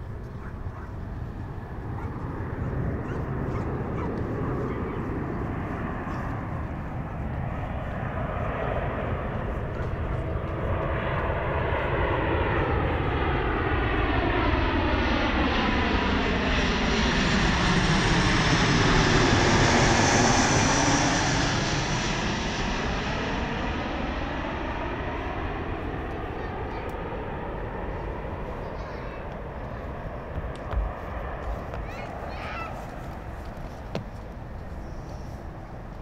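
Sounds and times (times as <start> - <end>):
jet airliner passing overhead: 0.0 - 36.0.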